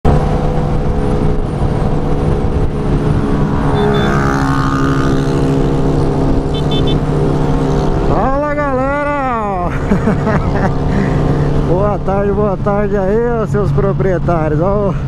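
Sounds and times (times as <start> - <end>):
wind rushing: 0.1 - 9.1
motorcycle engine accelerating: 0.1 - 14.5.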